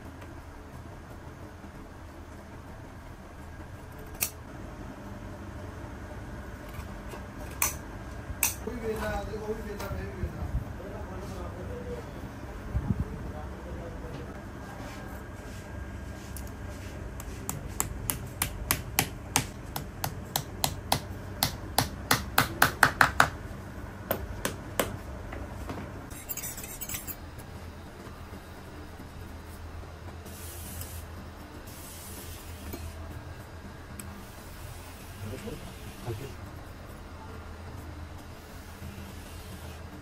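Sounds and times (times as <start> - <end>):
hammer tapping nails: 17.8 - 23.4.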